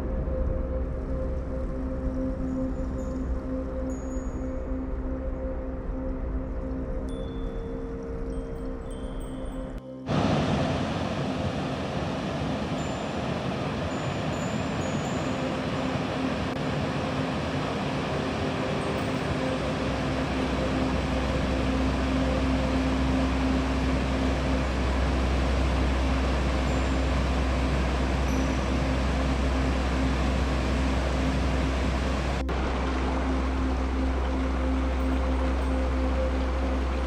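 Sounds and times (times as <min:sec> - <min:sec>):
deep steady hum: 0:00.0 - 0:37.0
river water rushing over rocks: 0:10.1 - 0:37.0.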